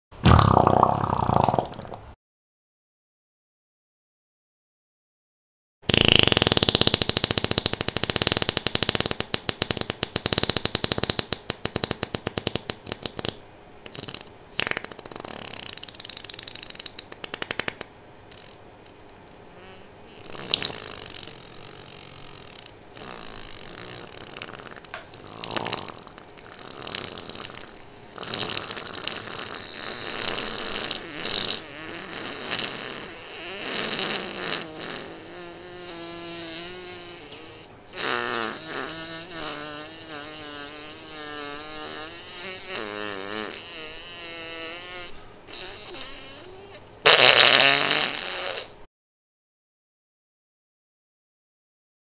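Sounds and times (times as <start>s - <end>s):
long fart: 0.2s - 2.1s, 5.8s - 18.6s, 19.6s - 48.9s.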